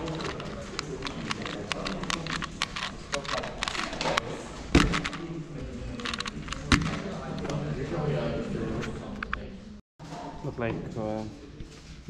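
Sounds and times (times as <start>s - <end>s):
puzzle pieces clicking: 0.0s - 4.2s, 6.0s - 7.1s
murmur of voices: 0.0s - 12.0s.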